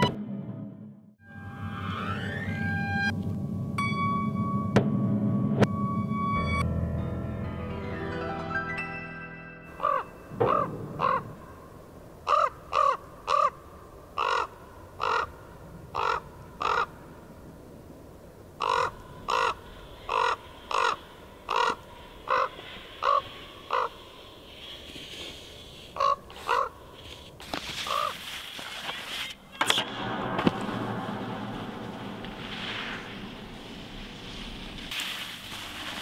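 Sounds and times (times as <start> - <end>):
crow cawing: 9.8 - 11.6, 12.2 - 13.6, 14.2 - 17.0, 18.6 - 24.1, 26.0 - 26.8
rushing noise: 29.6 - 36.0.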